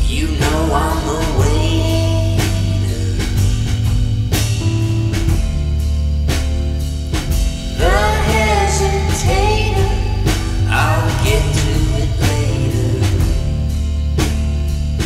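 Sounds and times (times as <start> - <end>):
person singing: 0.0 - 3.6, 7.8 - 13.7
band with steady beat: 0.0 - 15.0.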